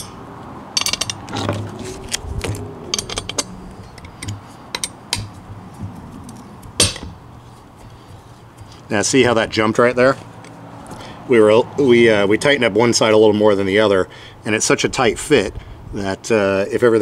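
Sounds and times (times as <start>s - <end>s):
hex key tightening bolts: 2.9s - 5.4s.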